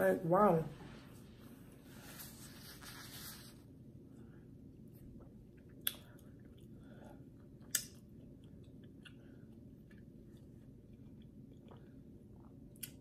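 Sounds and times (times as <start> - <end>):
low room hum: 0.0 - 13.0
person chewing food: 5.2 - 13.0.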